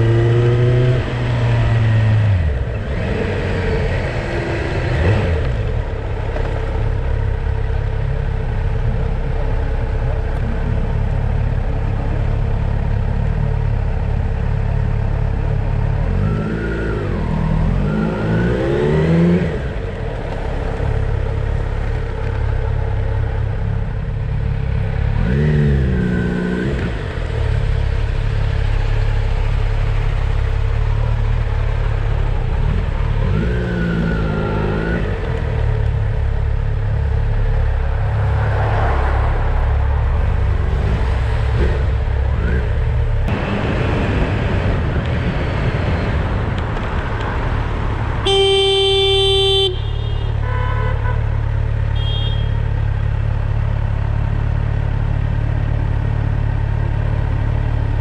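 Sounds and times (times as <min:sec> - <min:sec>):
motorcycle engine and road rumble: 0:00.0 - 0:58.0
vehicle horn blast: 0:48.2 - 0:52.7.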